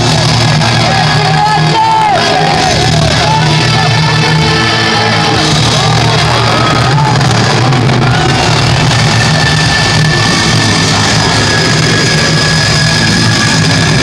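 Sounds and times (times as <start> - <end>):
crowd shouting and cheering: 0.0 - 14.0
loud music over speakers: 0.0 - 14.0.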